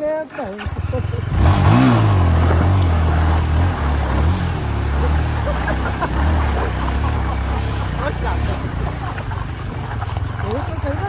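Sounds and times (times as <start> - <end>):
vehicle engine running: 0.0 - 11.0.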